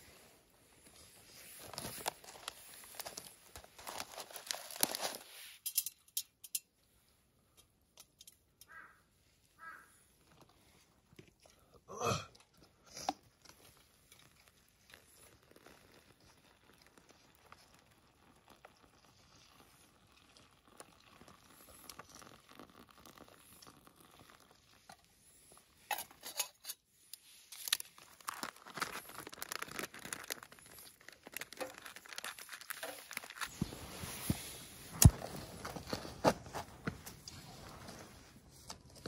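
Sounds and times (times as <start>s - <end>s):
clicks and scrapes on camp stove: 1.7s - 6.8s, 7.5s - 8.8s, 25.8s - 27.8s.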